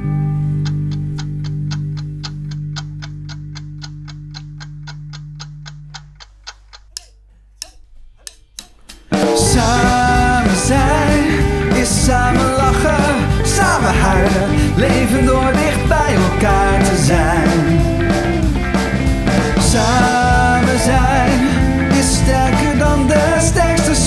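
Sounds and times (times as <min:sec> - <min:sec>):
bass and guitar notes ringing: 0:00.0 - 0:06.4, 0:09.0 - 0:24.0
steady ticking: 0:00.5 - 0:24.0
scattered clicks: 0:00.6 - 0:24.0
rock band playing: 0:08.8 - 0:24.0.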